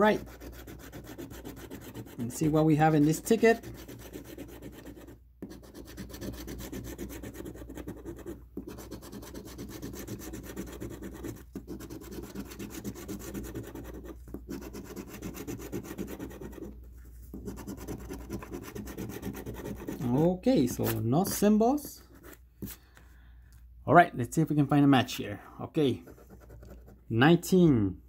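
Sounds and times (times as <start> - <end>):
coin scraping a scratch card: 0.0 - 16.7.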